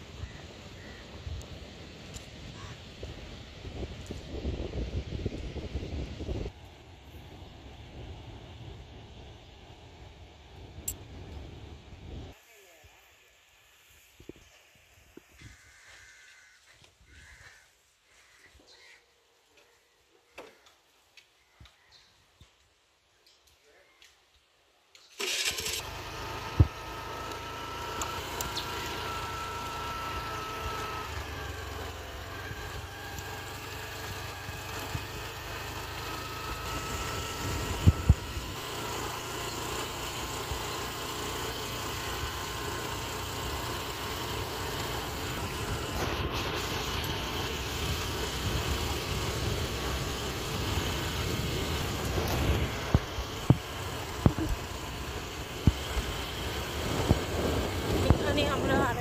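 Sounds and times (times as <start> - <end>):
road and wind noise: 0.0 - 17.8, 24.3 - 59.0
small vehicle engine running: 25.0 - 59.0.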